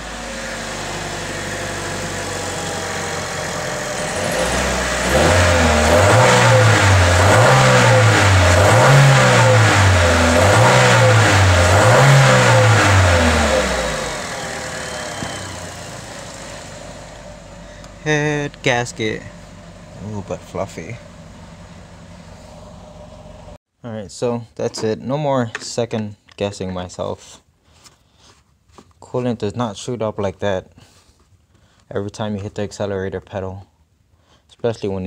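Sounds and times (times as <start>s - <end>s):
car engine idling and revving: 0.0s - 23.6s.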